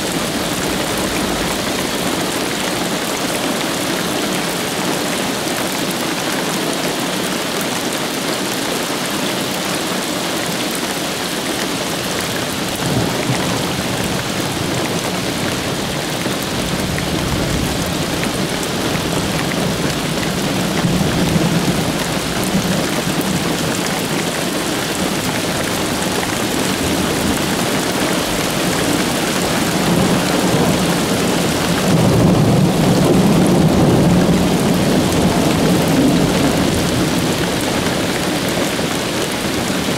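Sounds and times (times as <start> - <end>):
steady rain falling: 0.0 - 39.9
low rolling thunder: 12.5 - 39.9.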